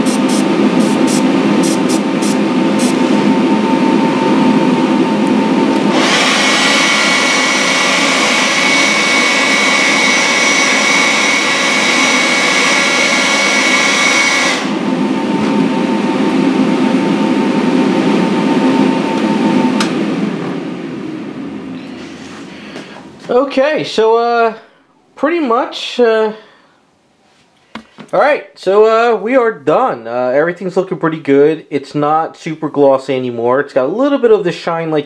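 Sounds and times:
airbrush spraying: 0.0 - 3.1
extractor fan running: 0.0 - 26.9.

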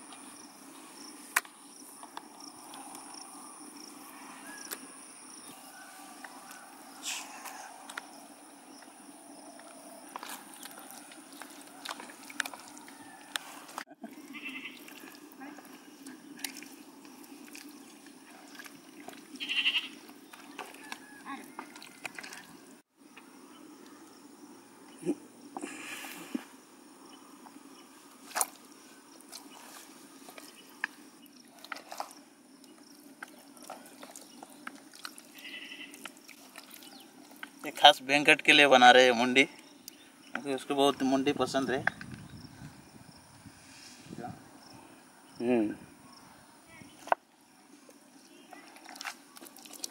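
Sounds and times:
outdoor background: 0.0 - 49.9
wet squelches of hand rubbing paste: 10.2 - 13.9, 14.7 - 22.6, 28.2 - 37.7, 48.5 - 49.9.

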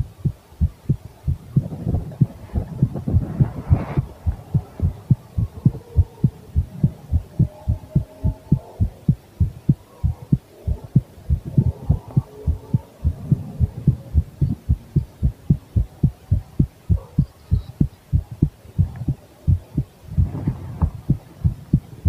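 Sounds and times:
heartbeat thumps: 0.0 - 22.0.

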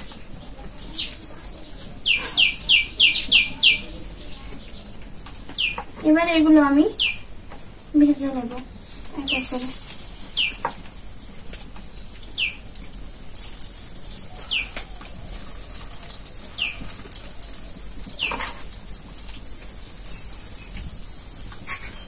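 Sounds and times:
bird chirping: 0.0 - 7.3, 9.2 - 10.8, 11.8 - 12.7, 14.1 - 15.0, 16.5 - 16.9, 18.1 - 18.5
food frying in oil: 0.0 - 22.0.

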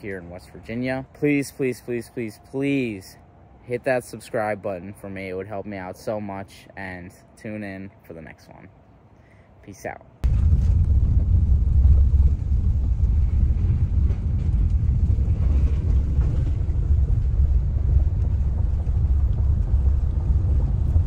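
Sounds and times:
tyres rumbling on bridge: 10.5 - 21.0.

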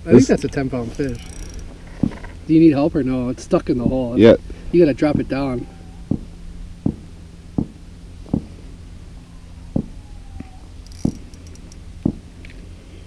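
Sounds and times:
faint low hum: 0.0 - 13.0
short dull knocks: 1.4 - 2.4, 6.1 - 8.6, 9.8 - 12.3.

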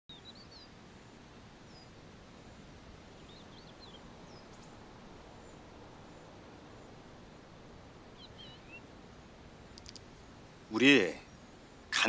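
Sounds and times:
low outdoor hiss: 0.1 - 12.0
high bird chirps: 8.2 - 8.8.

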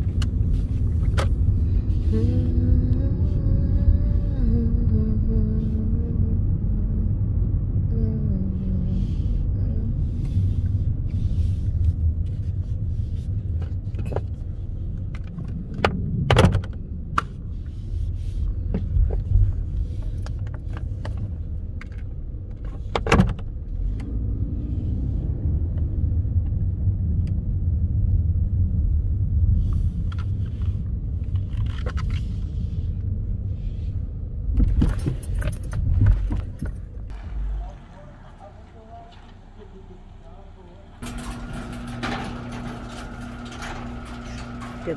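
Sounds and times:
engine and tyre rumble: 0.0 - 44.9
clicks and knocks in car cabin: 15.0 - 17.4, 18.7 - 23.5
rattles and knocks: 41.0 - 44.9.

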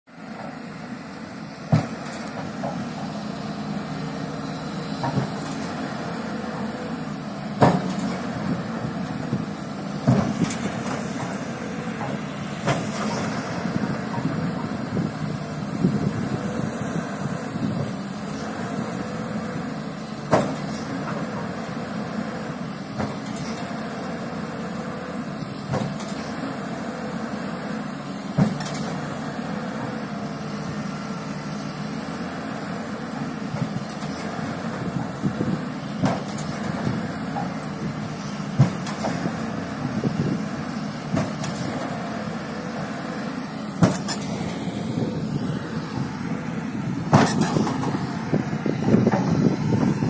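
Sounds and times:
heavy diesel engines running: 0.1 - 50.0.

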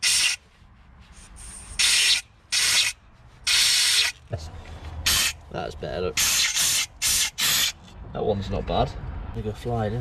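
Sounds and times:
compressed air hissing blasts: 0.0 - 0.4, 1.2 - 4.2, 5.0 - 5.4, 6.2 - 7.8.

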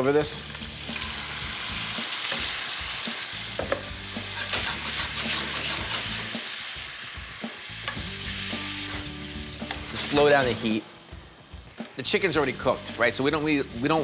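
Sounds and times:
chicken sizzling in a pan: 0.0 - 12.6
knocks against a pan: 3.6 - 3.9.

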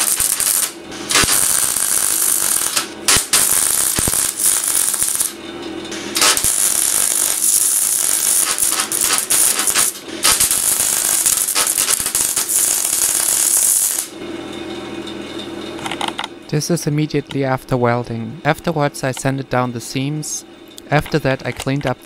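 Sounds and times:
electric arc welding crackle: 0.0 - 14.2.

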